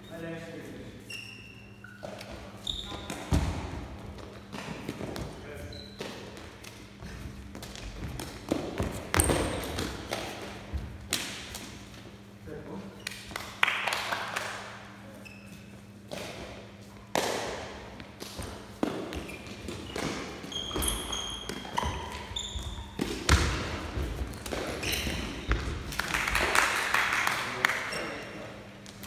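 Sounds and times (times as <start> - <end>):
short high squeaks: 1.0 - 3.1, 19.3 - 22.9
thuds and knocks in gym hall: 2.0 - 11.9, 16.1 - 26.6.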